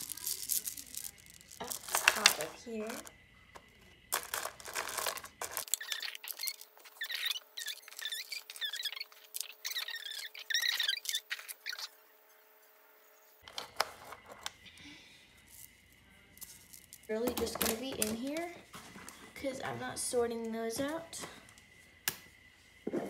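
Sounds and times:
plastic beads clattering: 0.0s - 11.9s, 15.4s - 18.5s.

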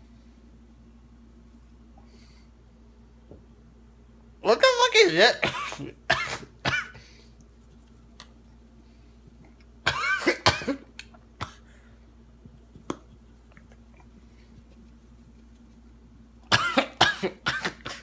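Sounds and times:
man coughing: 5.4s - 7.0s, 9.9s - 11.7s, 16.4s - 18.0s.

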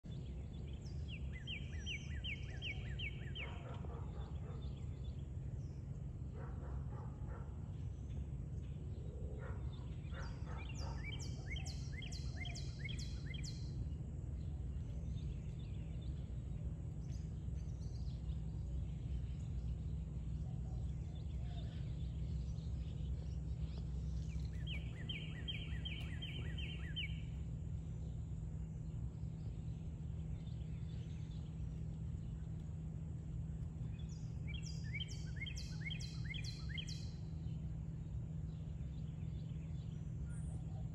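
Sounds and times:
low outdoor rumble: 0.0s - 40.9s
songbird whistles: 24.6s - 27.2s.

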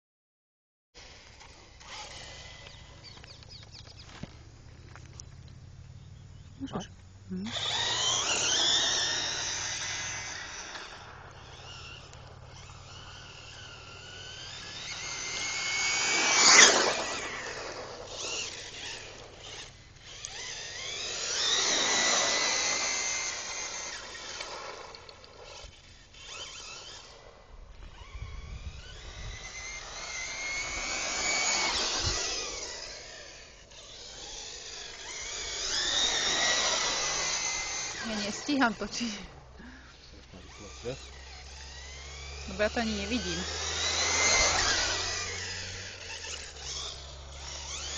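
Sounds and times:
toy car motor whining: 1.0s - 47.9s.

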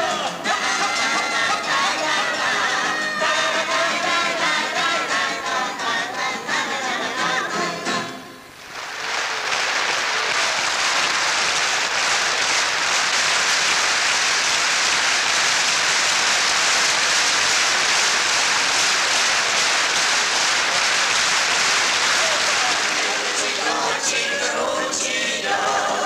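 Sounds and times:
large audience applauding: 8.6s - 24.8s.

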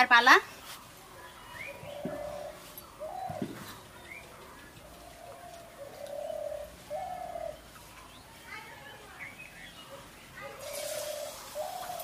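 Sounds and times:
small birds chirping: 0.0s - 12.0s
dove cooing: 1.6s - 7.7s, 10.6s - 12.0s.

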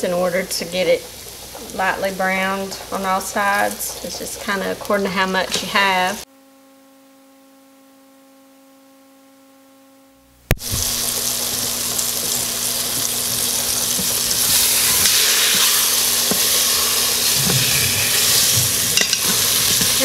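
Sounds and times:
meat sizzling in hot oil: 0.0s - 6.2s, 10.5s - 20.0s
utensil stirring in a pot: 11.9s - 20.0s.

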